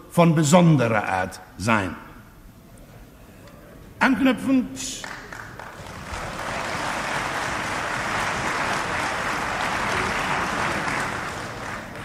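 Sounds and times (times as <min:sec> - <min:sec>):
dense applause: 0:05.0 - 0:12.0.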